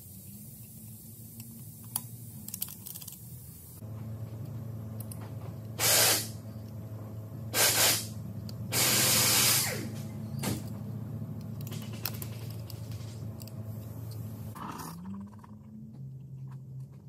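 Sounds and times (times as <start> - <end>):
steady low hum: 0.0 - 17.0
pressurised spray hissing: 5.8 - 6.4, 7.6 - 9.9.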